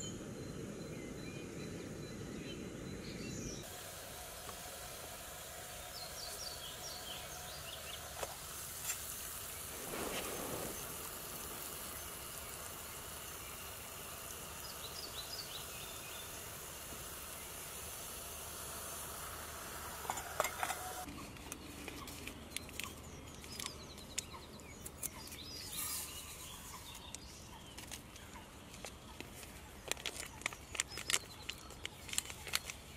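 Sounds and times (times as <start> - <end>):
camping stove burner hissing: 3.5 - 21.1.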